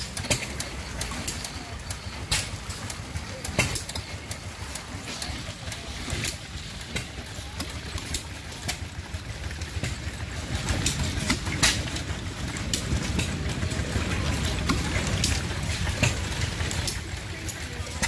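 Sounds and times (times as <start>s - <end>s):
gas engine running: 0.0s - 18.0s.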